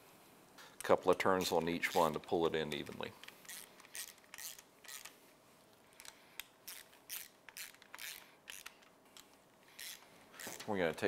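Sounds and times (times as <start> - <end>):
ratchet wrench clicking: 3.2 - 5.1, 6.7 - 8.8, 9.8 - 10.6.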